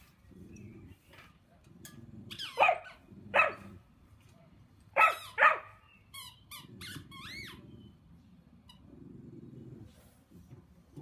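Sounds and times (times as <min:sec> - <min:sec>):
dog barking: 0:02.6 - 0:03.7, 0:05.0 - 0:05.8.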